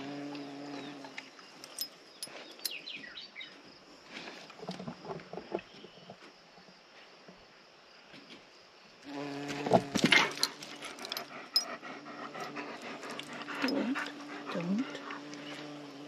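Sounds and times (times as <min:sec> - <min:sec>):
bumblebee buzzing: 0:00.0 - 0:01.2, 0:09.0 - 0:11.1, 0:12.0 - 0:16.0
bird chirping: 0:00.3 - 0:03.6.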